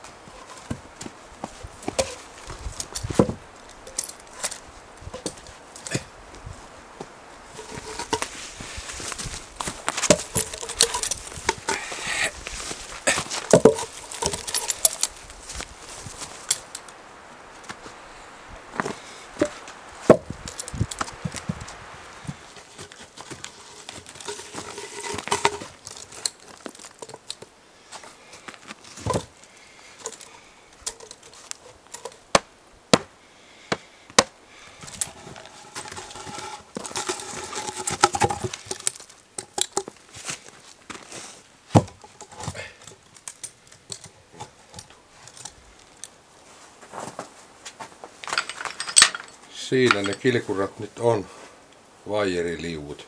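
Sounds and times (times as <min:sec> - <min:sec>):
footsteps crunching in snow: 0:06.3 - 0:16.6, 0:46.4 - 0:48.2
wood knocking on wood: 0:13.1 - 0:15.0.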